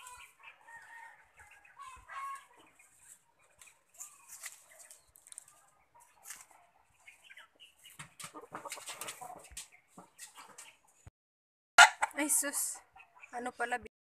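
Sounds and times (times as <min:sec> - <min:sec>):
chickens clucking: 0:00.0 - 0:11.1, 0:11.8 - 0:13.8.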